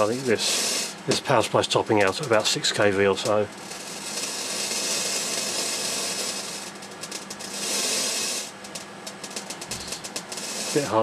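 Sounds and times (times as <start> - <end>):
radiation detector clicks: 1.1 - 4.3, 8.4 - 11.0.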